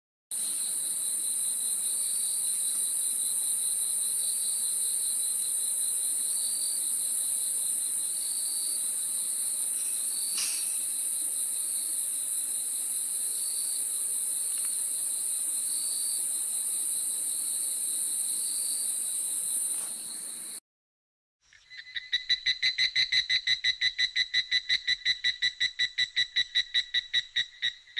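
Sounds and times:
crickets trilling: 0.4 - 20.6.

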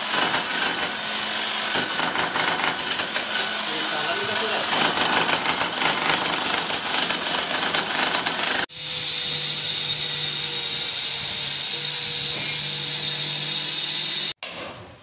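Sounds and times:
chipping hammer on concrete: 0.0 - 1.0, 1.7 - 3.5, 4.1 - 8.7
power cutter whining: 8.0 - 14.4.

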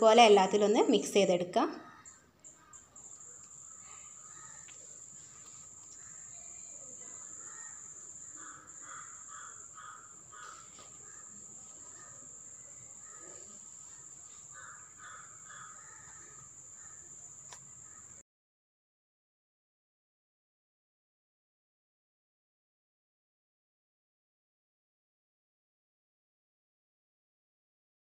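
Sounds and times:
faint bird calls: 1.8 - 18.2.

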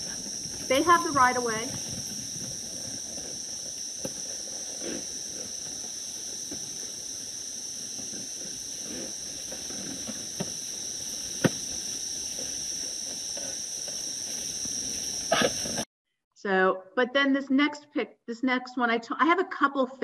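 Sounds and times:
insects droning: 0.0 - 15.9.

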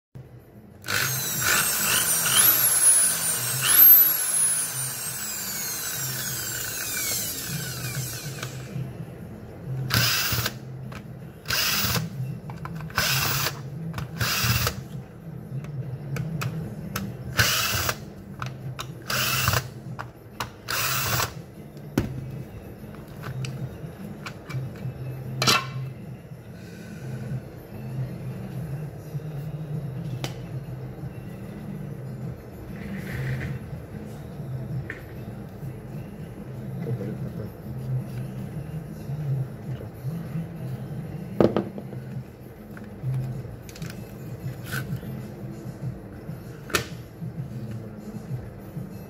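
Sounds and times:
cordless drill bursts: 0.8 - 8.6
electric drill whining: 0.8 - 8.7, 9.9 - 10.6.

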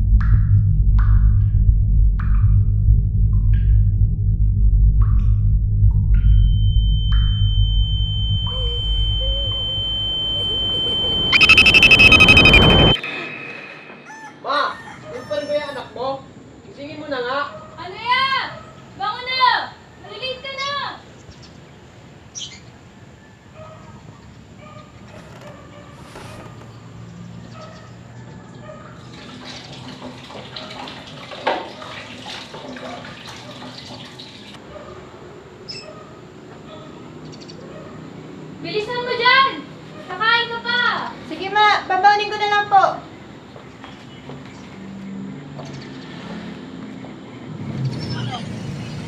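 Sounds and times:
low drone: 0.0 - 14.1
steady high-pitched tone: 6.2 - 14.1
alarm clock beeping: 6.3 - 13.3.

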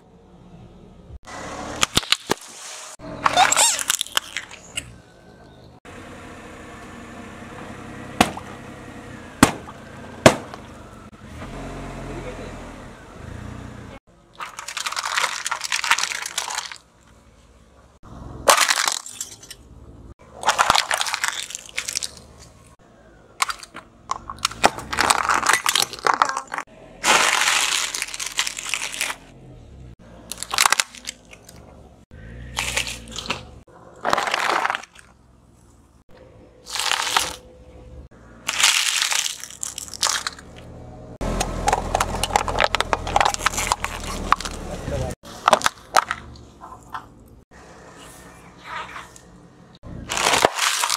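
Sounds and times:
car tyre crushing objects: 1.3 - 5.0, 8.0 - 8.7, 9.3 - 11.5, 14.2 - 17.2, 18.0 - 29.4, 30.0 - 37.5, 38.3 - 47.4, 49.1 - 50.9.

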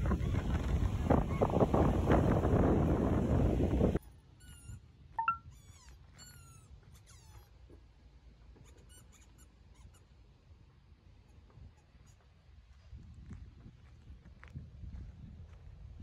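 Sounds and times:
squeaky dog toy squeaking: 4.4 - 7.5, 8.7 - 10.1.

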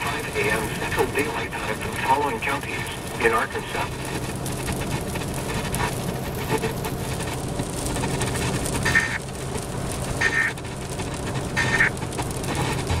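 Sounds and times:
buzzy digital data bursts: 11.6 - 12.0.

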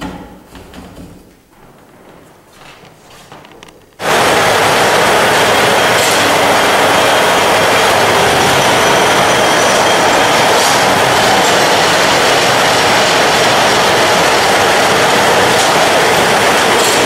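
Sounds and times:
spinning machine clattering: 4.0 - 17.0.

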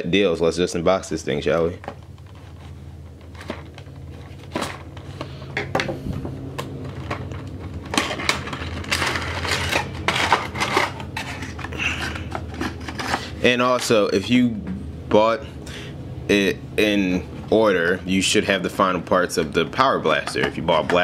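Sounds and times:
faint low hum: 0.0 - 21.0
plastic rustling and crinkling: 1.8 - 5.4, 6.0 - 13.4.

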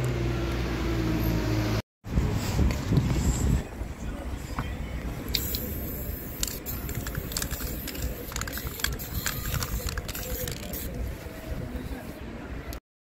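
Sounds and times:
spray paint can hissing: 5.3 - 11.1.

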